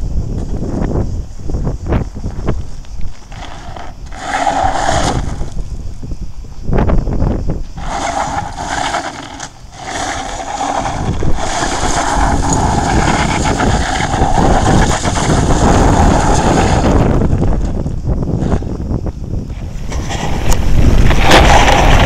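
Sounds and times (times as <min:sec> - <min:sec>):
wind rumbling on microphone: 0:00.0 - 0:22.0
tyre spinning on loose gravel: 0:03.1 - 0:05.7, 0:07.8 - 0:17.8, 0:19.6 - 0:22.0
electric bike motor whining: 0:07.8 - 0:17.2.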